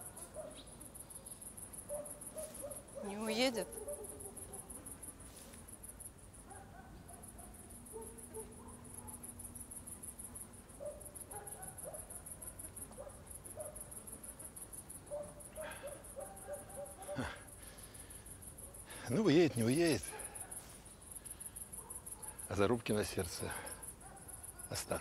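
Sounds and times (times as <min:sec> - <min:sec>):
faint short insect calls: 0:00.0 - 0:25.0
insects chirring: 0:00.0 - 0:25.0.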